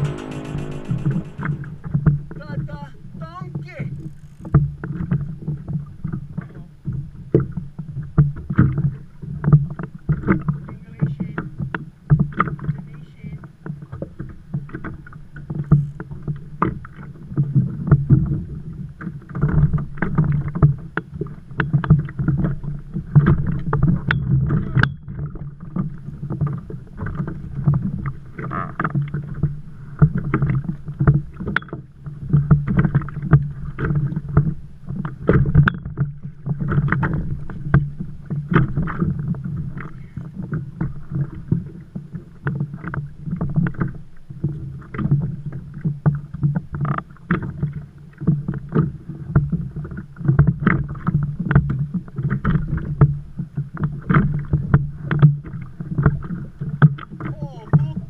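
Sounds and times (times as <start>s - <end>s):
steady low hum: 0.0s - 3.2s
water slapping kayak hull: 1.8s - 58.0s.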